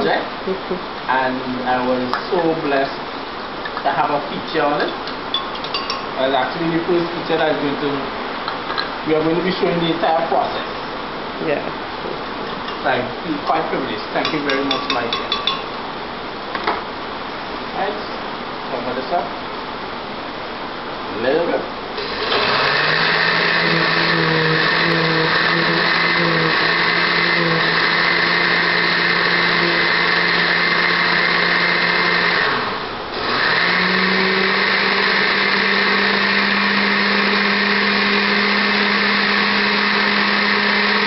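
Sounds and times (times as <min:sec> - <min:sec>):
countertop blender running: 0:22.0 - 0:41.0.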